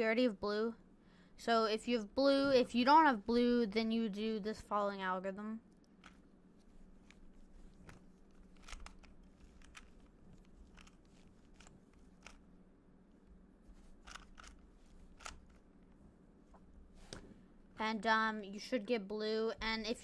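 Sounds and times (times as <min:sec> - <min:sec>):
steady low hum: 0:00.0 - 0:20.0
puzzle cube layers clicking: 0:07.0 - 0:12.4, 0:13.8 - 0:15.8.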